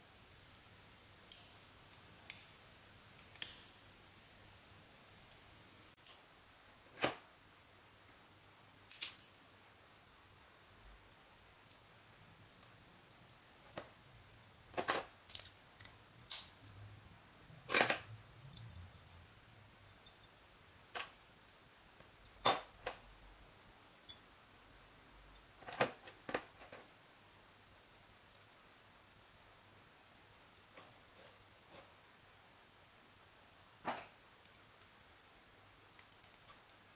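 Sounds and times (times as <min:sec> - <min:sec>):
small plastic parts clicking: 0:14.7 - 0:16.5, 0:35.8 - 0:36.8.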